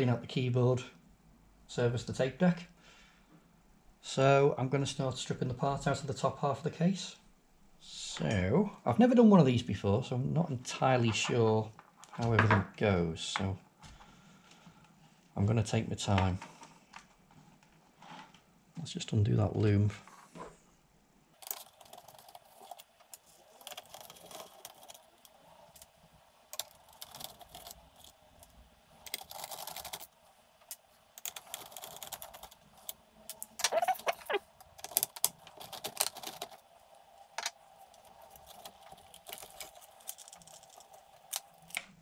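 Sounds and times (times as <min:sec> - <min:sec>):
plastic clicks scrapes and rattles: 0:26.5 - 0:36.6.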